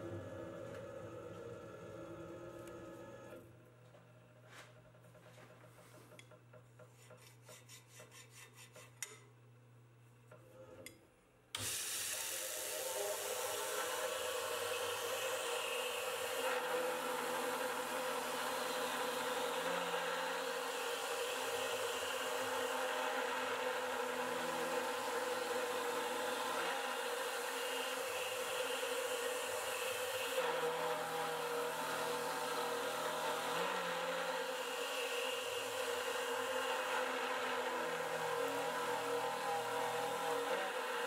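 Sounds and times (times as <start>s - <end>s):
milling machine cutting metal: 12.3s - 41.0s.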